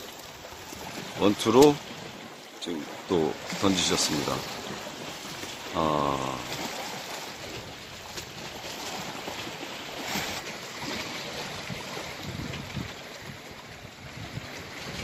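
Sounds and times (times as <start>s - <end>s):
sea water washing against rocks: 0.0s - 15.0s
wind noise on microphone: 10.1s - 15.0s.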